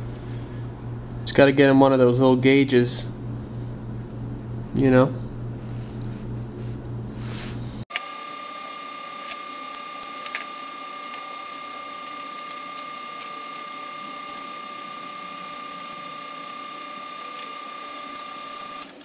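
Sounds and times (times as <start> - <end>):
steady high-pitched whine: 7.7 - 19.0.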